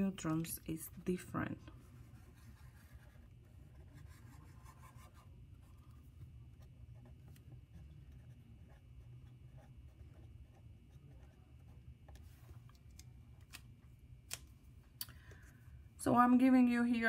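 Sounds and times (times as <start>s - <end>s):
low room hum: 0.0s - 17.0s
pen scratching on paper: 0.2s - 12.0s.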